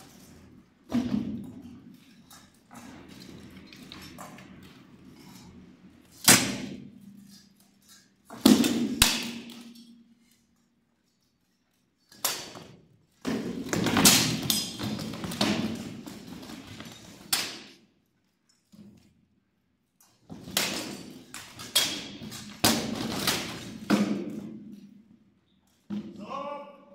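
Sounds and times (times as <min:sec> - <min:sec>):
swords striking shields and armour: 0:06.2 - 0:07.0, 0:08.3 - 0:10.0, 0:13.3 - 0:16.0, 0:20.4 - 0:24.6.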